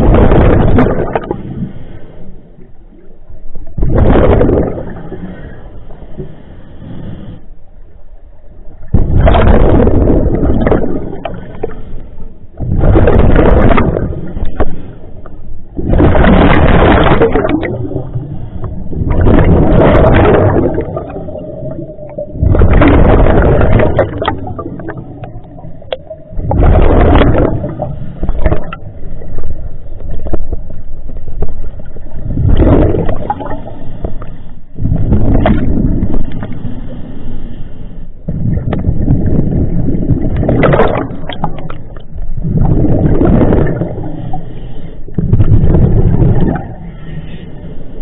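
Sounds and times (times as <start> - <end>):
gurgling exhaled bubbles: 0.0 - 1.7, 3.7 - 5.6, 8.8 - 33.9, 34.8 - 36.6, 38.3 - 44.4, 45.1 - 46.9
low steady rumble: 0.0 - 48.0.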